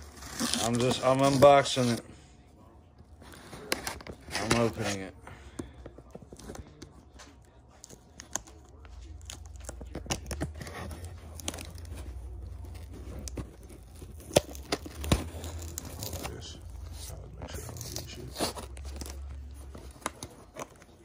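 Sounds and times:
packing tape tearing: 0:00.0 - 0:02.0, 0:09.2 - 0:21.0
cardboard crinkling: 0:00.0 - 0:21.0.

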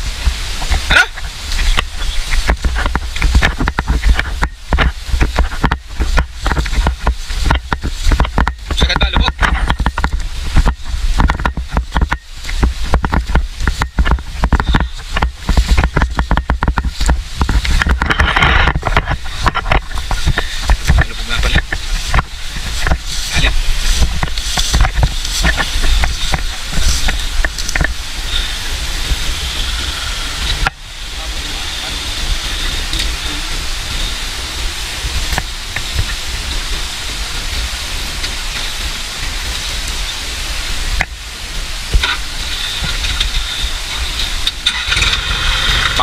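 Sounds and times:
steady hiss: 0:00.0 - 0:46.0
diesel tractor engine running: 0:42.0 - 0:46.0.

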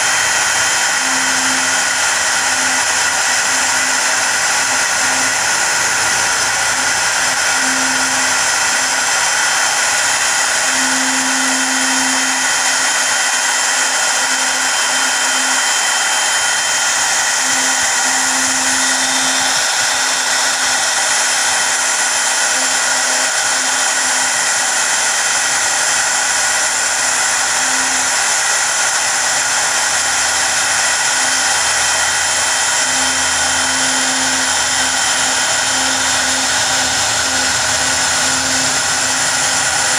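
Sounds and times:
router spindle high-pitched whine: 0:00.0 - 0:39.9.

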